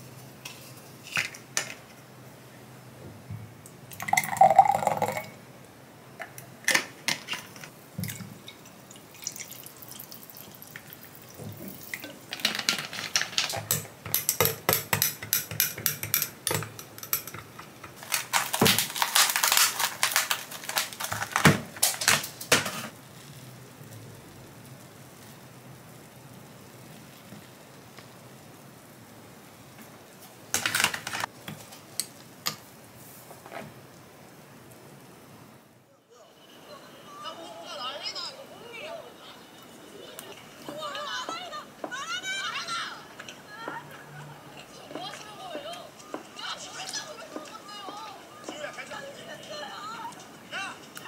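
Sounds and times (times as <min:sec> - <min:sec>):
dishes and utensils clinking: 0:11.6 - 0:20.1.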